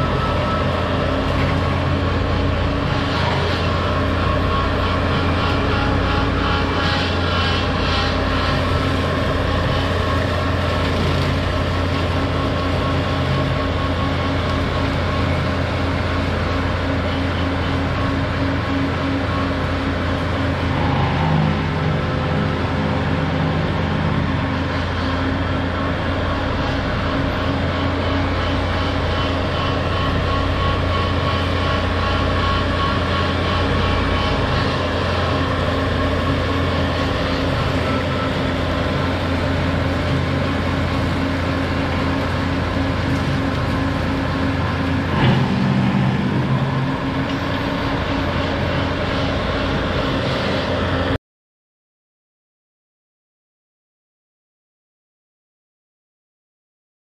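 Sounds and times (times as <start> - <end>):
engine running under load: 0.0 - 51.2.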